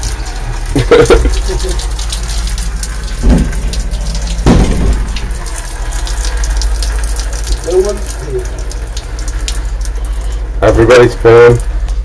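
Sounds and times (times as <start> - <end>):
urine splashing into toilet bowl: 0.0 - 12.0.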